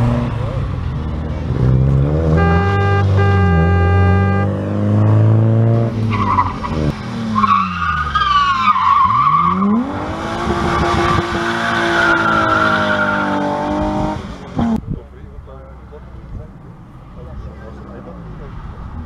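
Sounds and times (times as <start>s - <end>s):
rally car engine revving: 0.0s - 14.9s
tyres squealing and skidding: 6.0s - 9.9s, 10.6s - 13.9s.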